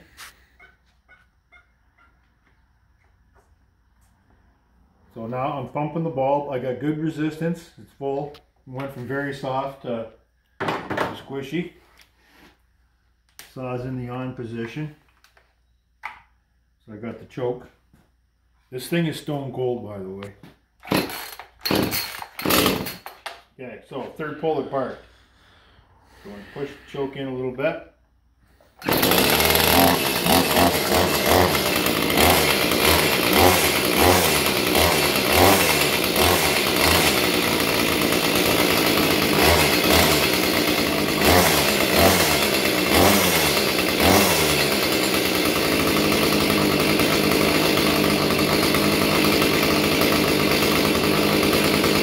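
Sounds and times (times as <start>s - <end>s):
chainsaw engine running unevenly: 20.9s - 23.1s, 28.8s - 52.0s.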